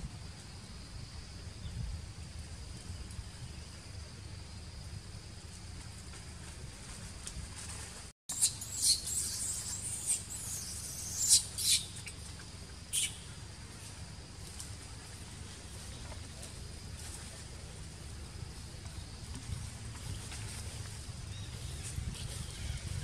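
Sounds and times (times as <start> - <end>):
baby monkey squeaking: 8.3 - 12.2, 12.9 - 13.3.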